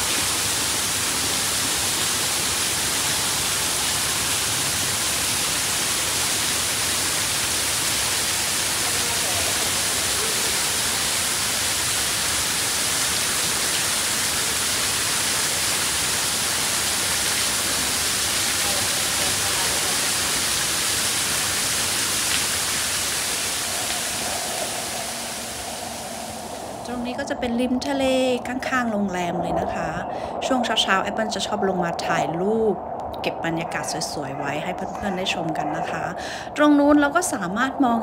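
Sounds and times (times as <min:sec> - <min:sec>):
waterfall rushing and splashing: 0:00.0 - 0:27.4.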